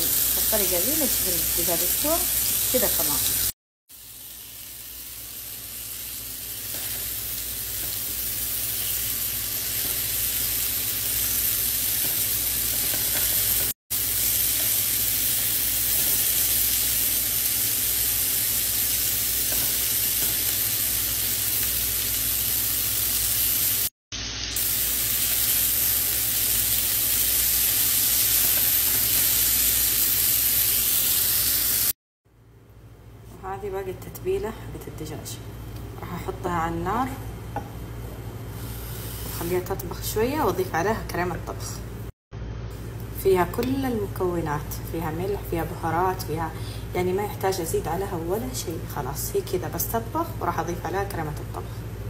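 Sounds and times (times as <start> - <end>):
meat sizzling in oil: 0.0 - 32.0.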